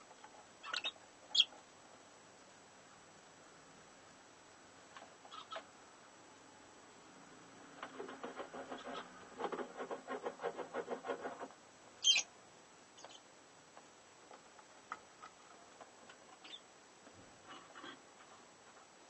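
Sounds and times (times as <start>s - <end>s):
lovebirds pulsed calls: 0.6s - 1.6s, 5.3s - 5.7s, 12.0s - 12.3s, 13.0s - 13.3s, 16.4s - 16.7s
scratches in nesting material: 7.8s - 11.6s.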